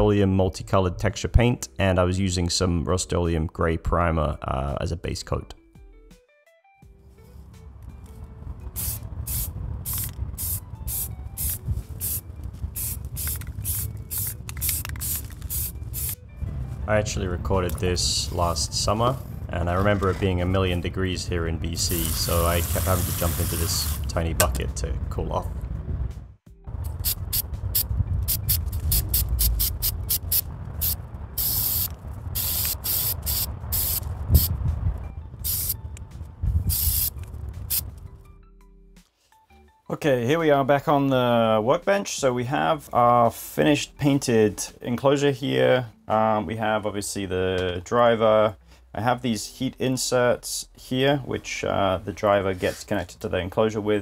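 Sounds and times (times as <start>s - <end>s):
spray paint can hissing: 8.7s - 16.2s, 21.9s - 24.0s, 26.9s - 34.5s, 35.4s - 35.8s, 36.7s - 37.9s.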